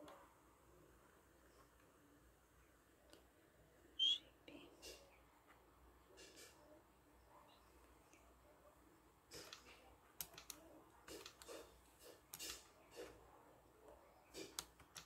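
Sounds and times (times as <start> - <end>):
keyboard keystrokes clicking: 9.4 - 11.6, 14.4 - 15.0.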